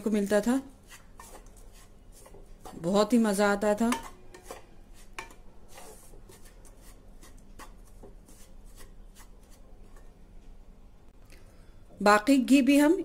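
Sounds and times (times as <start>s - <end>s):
spatula scraping flour in a pan: 0.1s - 10.1s.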